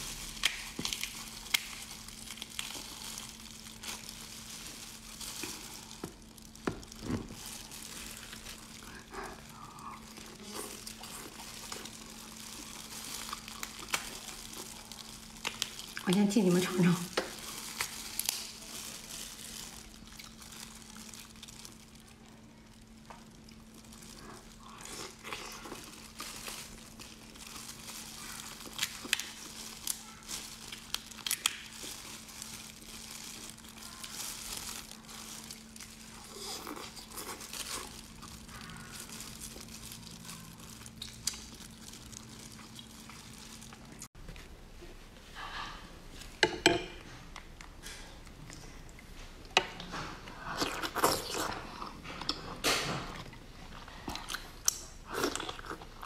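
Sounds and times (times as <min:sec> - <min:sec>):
crunchy chewing: 0:00.0 - 0:16.0, 0:17.1 - 0:44.1
prawn shells crackling: 0:00.0 - 0:44.1
plastic gloves crinkling: 0:00.0 - 0:46.5
faint steady hum: 0:00.0 - 0:56.0.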